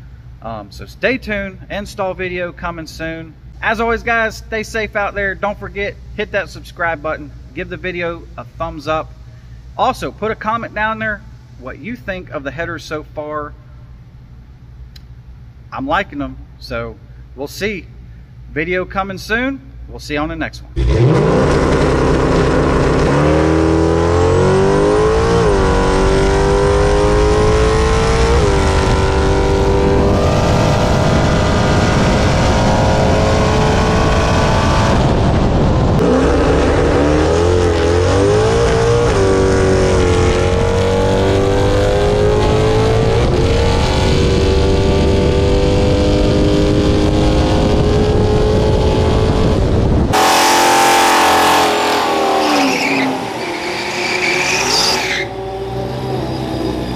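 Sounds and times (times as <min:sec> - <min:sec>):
noisier car sound: 0:20.7 - 0:56.9
pickup engine at full throttle: 0:20.8 - 0:56.9.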